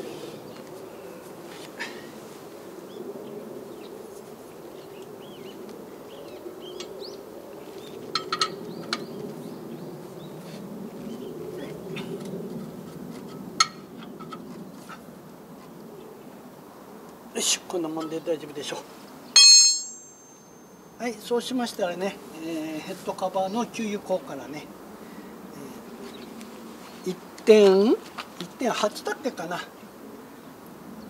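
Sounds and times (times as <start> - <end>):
metal clinks: 19.4 - 20.8.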